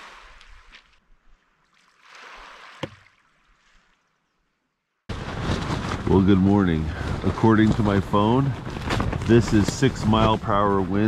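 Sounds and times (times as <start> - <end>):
water sloshing: 0.0 - 4.6.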